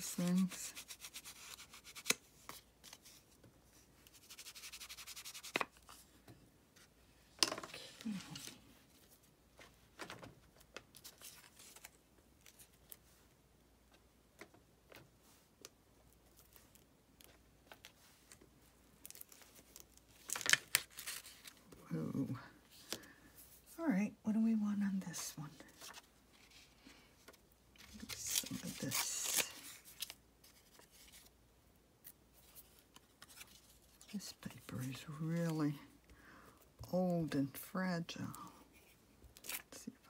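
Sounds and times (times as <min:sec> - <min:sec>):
paper rustling: 0:07.8 - 0:13.2, 0:25.6 - 0:31.3, 0:32.4 - 0:35.5.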